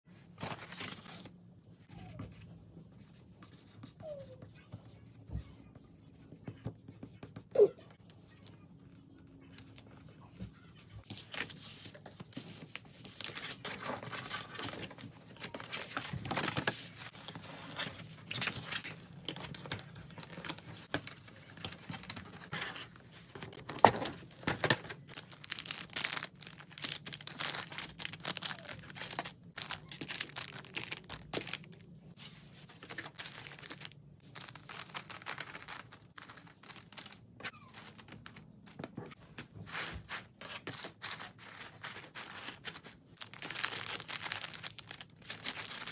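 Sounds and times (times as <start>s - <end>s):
packaging crinkling and rustling: 11.0s - 45.9s.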